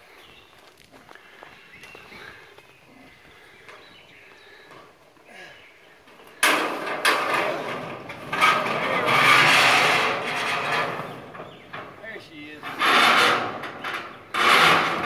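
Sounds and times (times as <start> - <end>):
metal roof sheet scraping: 6.1 - 15.0
sharp metal bangs: 6.4 - 12.0.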